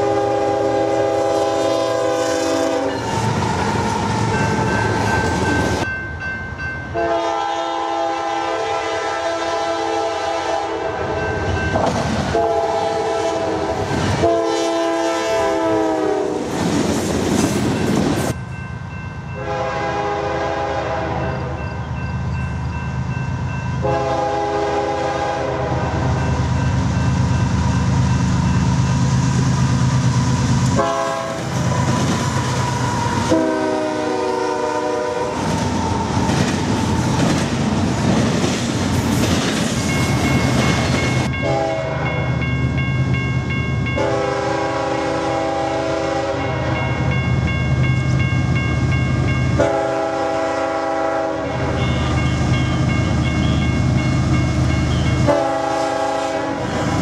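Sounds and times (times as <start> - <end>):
locomotive air horn blasts: 0.0 - 4.4, 7.0 - 11.3, 12.3 - 16.5, 19.4 - 21.6, 23.8 - 26.3, 30.8 - 31.9, 32.7 - 35.6, 41.3 - 42.2, 44.0 - 46.9, 49.5 - 52.2, 54.9 - 57.0.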